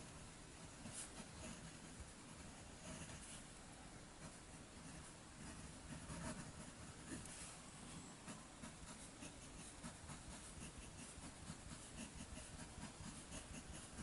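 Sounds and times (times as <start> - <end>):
pen nib scratching paper: 0.8 - 3.4, 4.2 - 7.5, 8.2 - 14.0.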